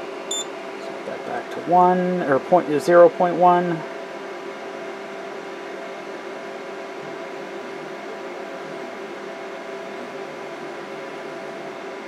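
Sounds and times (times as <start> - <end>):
stepper motor hum: 0.0 - 3.8.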